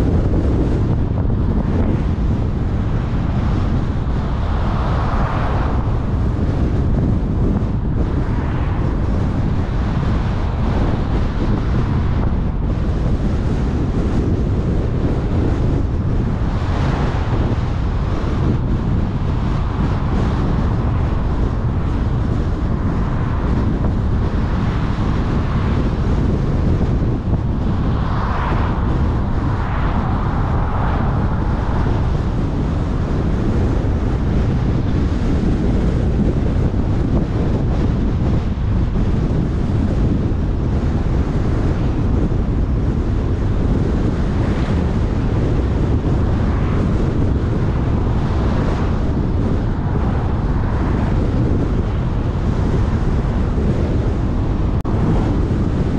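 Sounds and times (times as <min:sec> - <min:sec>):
car road noise: 0:00.0 - 0:55.9
wind rumble on microphone: 0:00.0 - 0:55.9
passing car whoosh: 0:00.6 - 0:14.6, 0:15.2 - 0:36.0.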